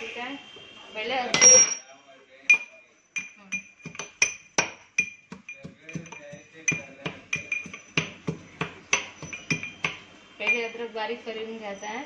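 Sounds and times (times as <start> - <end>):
pestle knocking in steel cup: 2.5 - 10.8.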